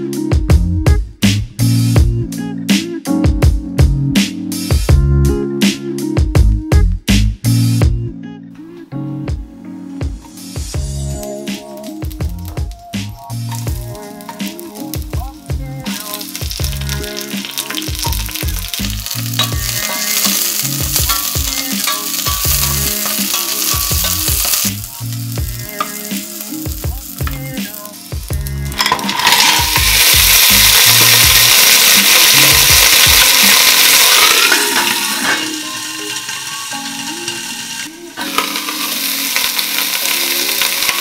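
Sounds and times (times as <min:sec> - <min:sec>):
background music with bass: 0:00.0 - 0:41.0
vegetables sizzling in pot: 0:11.3 - 0:41.0.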